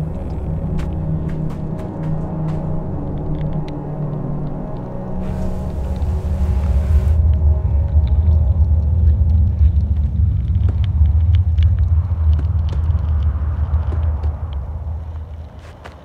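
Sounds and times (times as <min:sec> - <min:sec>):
deep low rumble: 0:00.0 - 0:16.0
small clicks and ticks: 0:07.2 - 0:16.0.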